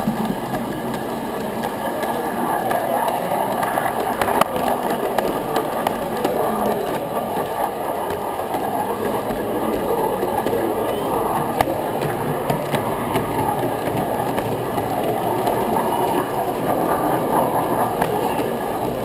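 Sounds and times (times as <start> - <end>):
model train rolling on track: 0.0 - 19.0.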